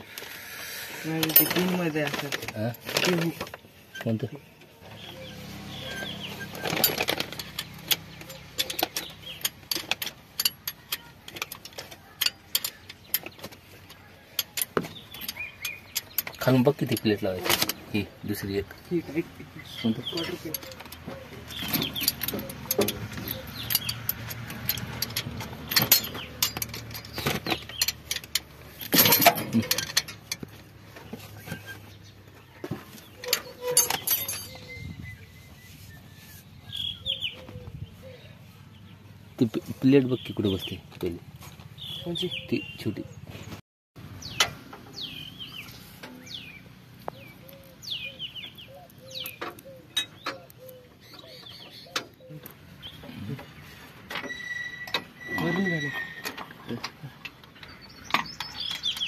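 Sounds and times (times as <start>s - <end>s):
birds chirping: 0.0s - 59.0s
metal clatter: 1.0s - 4.3s, 4.9s - 18.8s, 19.7s - 34.9s
spanner and metal rods clinking: 1.0s - 4.3s, 4.9s - 32.0s, 32.8s - 35.2s, 44.2s - 59.0s
metallic clicks: 20.0s - 30.5s.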